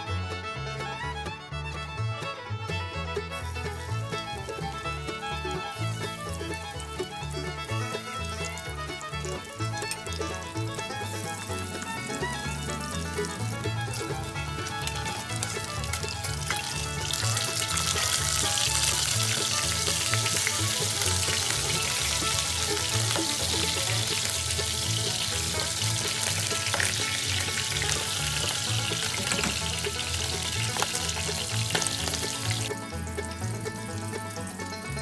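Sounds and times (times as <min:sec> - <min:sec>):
fish sizzling in hot oil: 0:14.6 - 0:32.7
utensils clicking against pan: 0:14.7 - 0:32.7.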